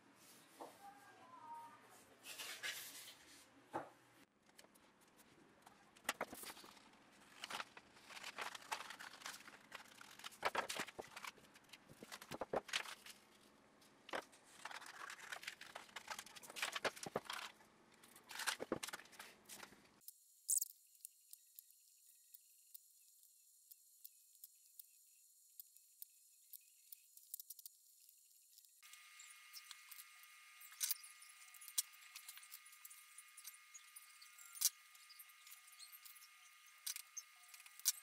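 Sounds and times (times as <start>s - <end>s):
paper rustling and sliding: 2.2s - 3.4s, 6.1s - 13.4s, 14.1s - 17.6s
scissors cutting paper: 6.1s - 13.2s, 14.6s - 17.6s.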